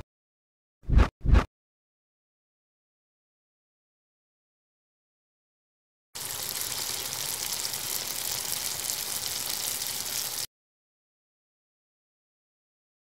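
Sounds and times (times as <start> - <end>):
chips sizzling in deep fryer: 6.2 - 10.5.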